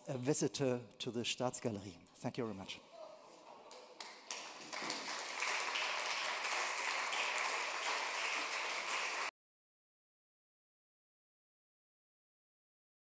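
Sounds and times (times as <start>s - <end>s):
audience applauding: 3.7s - 9.3s.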